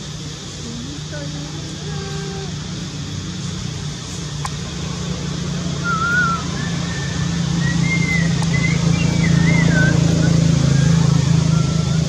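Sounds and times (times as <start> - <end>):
low motor-like hum: 0.0 - 12.0
high wavering whistle-like call: 5.8 - 12.0.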